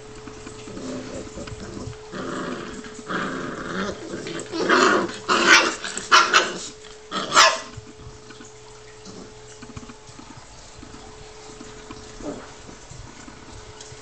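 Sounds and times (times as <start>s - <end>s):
puppies growling: 0.1s - 14.0s
puppies barking: 0.6s - 7.8s.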